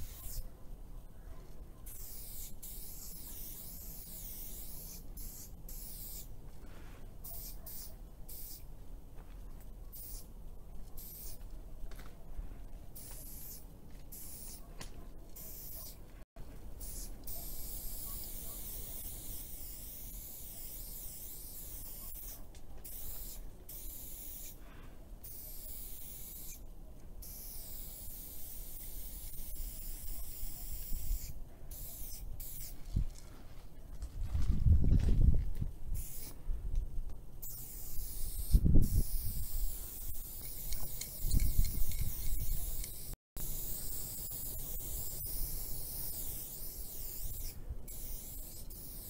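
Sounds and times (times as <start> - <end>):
spray paint can hissing: 0.0 - 0.5, 1.8 - 6.3, 7.2 - 8.7, 9.9 - 10.3, 11.0 - 11.5, 13.0 - 14.6, 15.3 - 16.0, 16.7 - 24.6, 25.2 - 26.6, 27.2 - 32.9, 35.9 - 36.4, 37.4 - 49.0.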